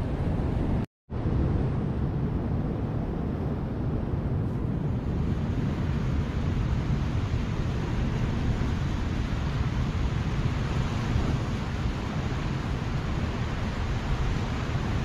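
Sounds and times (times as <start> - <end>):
wind buffeting microphone: 0.0 - 15.0
ocean surf against rocks: 5.0 - 15.0.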